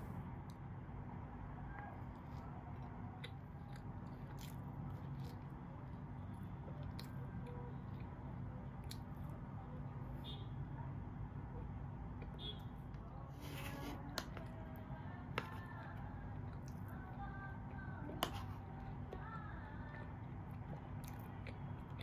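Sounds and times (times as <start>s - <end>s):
low room hum: 0.0s - 22.0s
chewing and mouth sounds: 1.8s - 9.5s, 15.4s - 22.0s.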